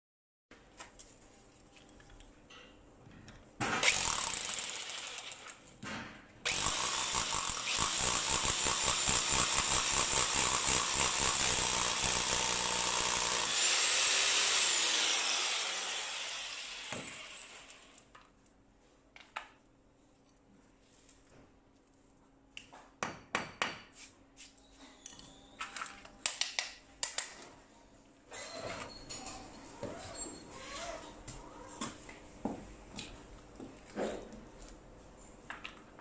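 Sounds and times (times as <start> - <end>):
drill motor winding down: 3.8 - 5.4, 6.5 - 18.0
hammer drill boring into concrete: 3.8 - 5.6, 6.5 - 18.0.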